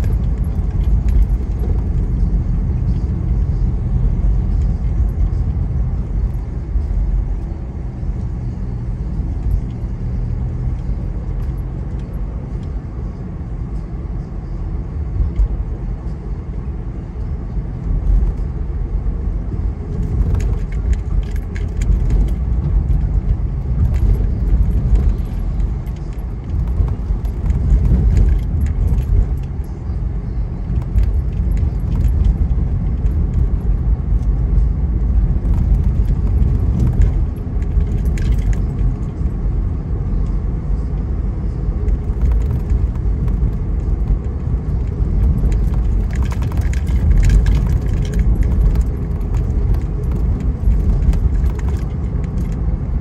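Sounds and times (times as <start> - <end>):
car road and engine rumble: 0.0 - 53.0
light jingling rattles: 35.4 - 39.3, 41.9 - 52.6.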